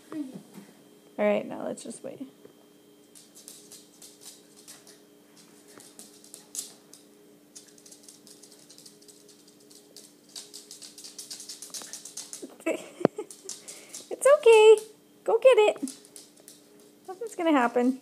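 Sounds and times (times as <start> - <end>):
faint steady hum: 0.0 - 18.0
puppy claws clicking on floor: 3.1 - 15.0, 15.7 - 18.0.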